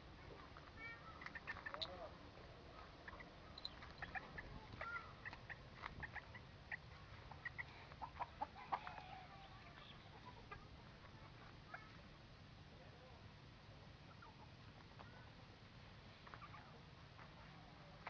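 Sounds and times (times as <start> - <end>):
chickens clucking: 0.3 - 12.0, 14.0 - 15.2, 16.1 - 16.8.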